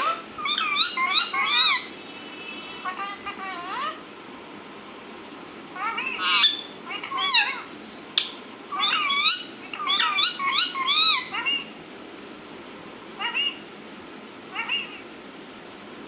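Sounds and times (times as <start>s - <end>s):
parakeet chattering: 0.0s - 4.0s, 5.7s - 7.8s, 8.7s - 11.8s, 13.2s - 13.7s, 14.5s - 15.1s
sharp click: 8.2s - 8.4s.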